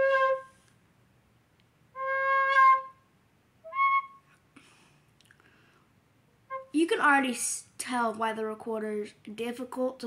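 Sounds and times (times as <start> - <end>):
recorder playing notes: 0.0 - 0.5, 2.0 - 3.0, 3.6 - 4.3, 6.4 - 6.8.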